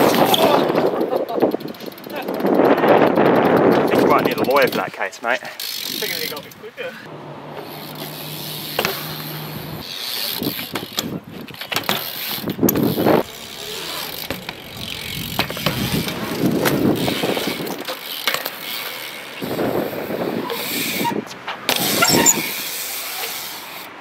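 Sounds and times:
wind buffeting microphone: 0.0 - 4.9, 12.4 - 13.5, 14.5 - 17.9, 19.4 - 22.6
bike tyres rolling on concrete: 0.0 - 24.0.

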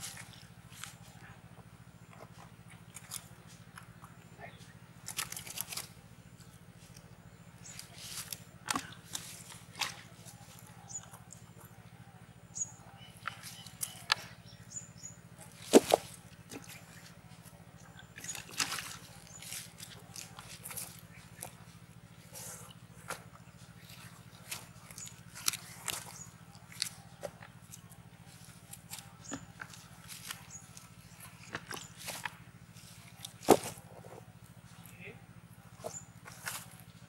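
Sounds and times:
leaves rustling and crackling: 7.6 - 8.4, 18.3 - 21.5.

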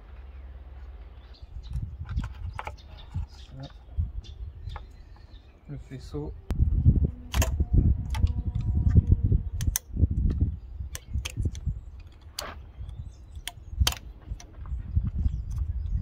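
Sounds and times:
low rumble: 0.0 - 16.0
plastic connector clicks: 7.3 - 12.5, 13.4 - 14.5.

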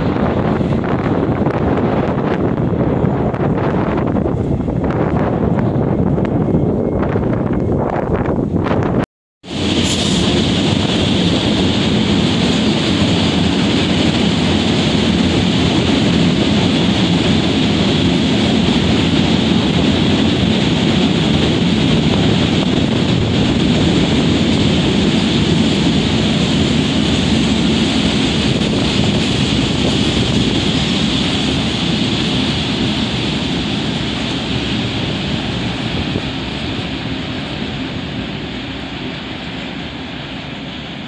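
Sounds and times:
train wheels rumbling on rails: 0.0 - 41.0.

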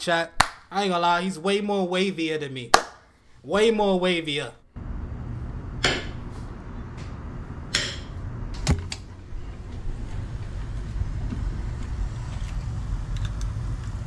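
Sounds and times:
steady low hum: 4.7 - 14.0.

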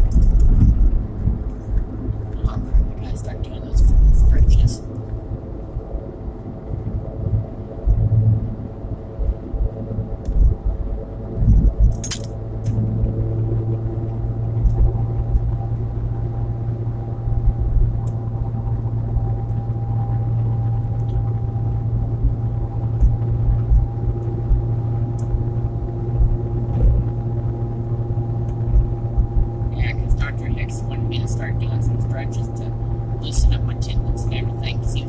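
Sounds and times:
metallic rattle: 0.0 - 0.5, 11.9 - 12.3
car cabin engine and road drone: 0.0 - 35.0.

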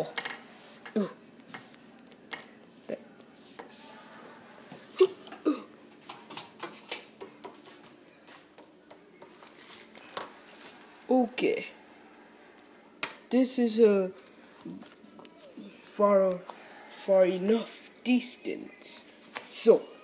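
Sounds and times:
person murmuring: 0.9 - 1.2.

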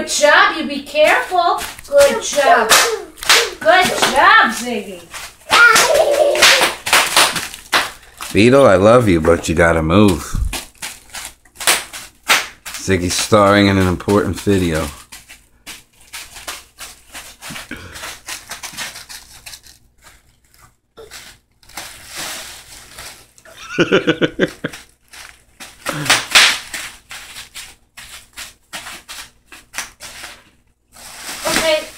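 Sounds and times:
bubble wrap popping: 1.2 - 31.9.

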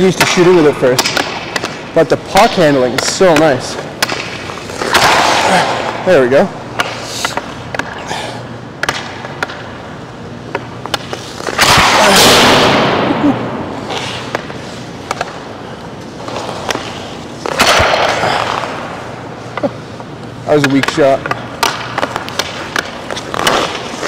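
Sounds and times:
hockey stick smacking puck on ice: 0.1 - 6.0, 6.8 - 8.0, 8.8 - 9.7, 10.5 - 12.9, 13.9 - 15.4, 16.2 - 18.9, 20.6 - 24.0
hockey stick tapping puck: 0.1 - 6.0, 6.7 - 8.0, 8.8 - 9.8, 10.4 - 12.0, 13.9 - 15.5, 16.2 - 18.9, 19.5 - 24.0.

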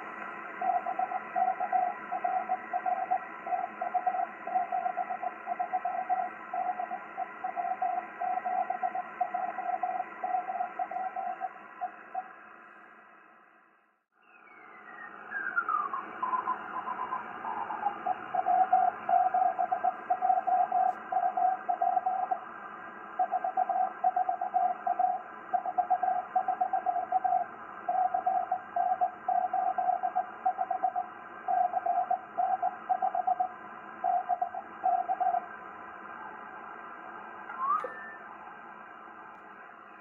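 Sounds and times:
morse code tones: 37.5 - 38.3.

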